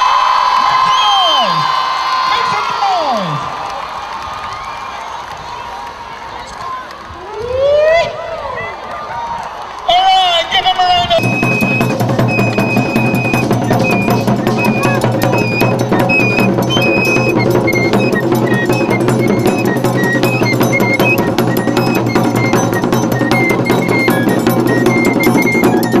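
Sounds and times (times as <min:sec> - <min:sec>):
high piping melody: 0:10.6 - 0:26.0
hand drums beating: 0:11.0 - 0:26.0.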